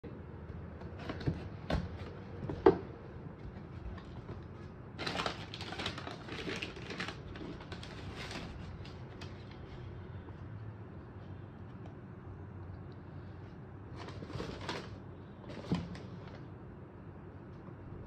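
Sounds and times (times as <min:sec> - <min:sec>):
paper crinkling and rustling: 0:03.4 - 0:10.0, 0:13.9 - 0:16.5.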